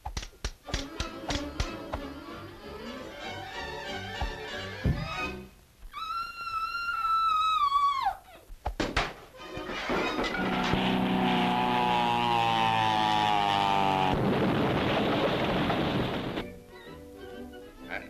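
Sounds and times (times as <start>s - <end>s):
buzzing drone rising in pitch: 10.5s - 16.4s
noisy crashing rumble: 14.1s - 16.5s.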